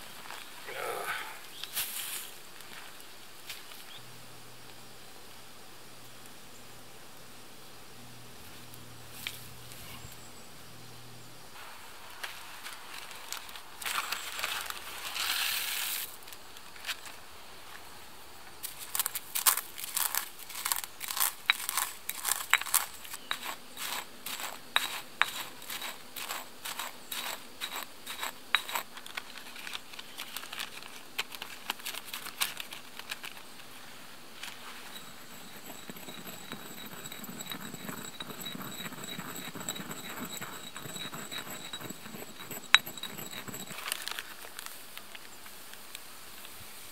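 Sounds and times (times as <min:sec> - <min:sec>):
dry contents pouring: 0:18.7 - 0:33.4
pestle scraping and grinding: 0:18.7 - 0:33.4, 0:34.5 - 0:44.4
pestle knocking in stone mortar: 0:19.5 - 0:28.8, 0:34.9 - 0:43.8
plastic bag crinkling: 0:28.9 - 0:33.5.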